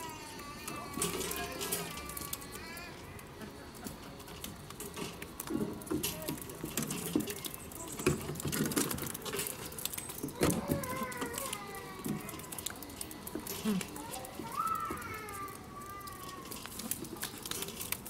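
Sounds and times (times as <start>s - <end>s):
penguins' feet tapping on concrete: 3.4s - 15.4s.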